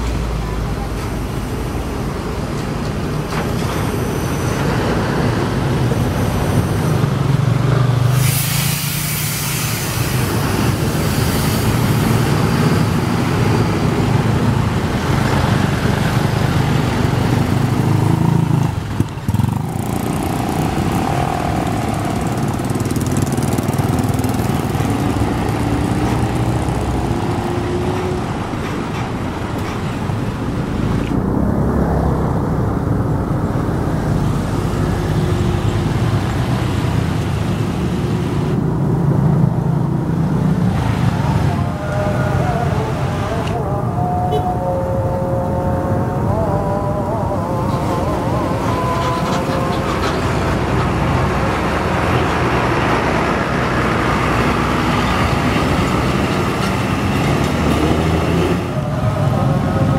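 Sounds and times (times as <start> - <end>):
tyre noise on wet road: 0.0 - 43.7
buses and traffic passing: 0.0 - 59.9
loud air brake hiss: 8.1 - 12.2.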